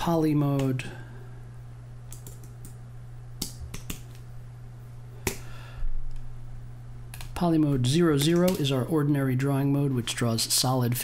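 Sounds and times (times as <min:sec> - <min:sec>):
steady low hum: 0:00.0 - 0:11.0
keyboard keystrokes: 0:02.1 - 0:02.8, 0:08.2 - 0:08.7.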